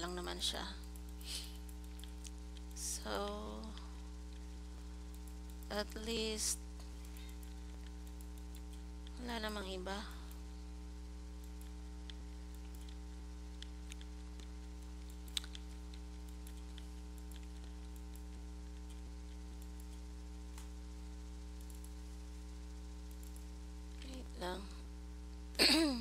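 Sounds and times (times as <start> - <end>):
electrical hum: 0.0 - 26.0
mouse and keyboard clicks: 13.6 - 20.7.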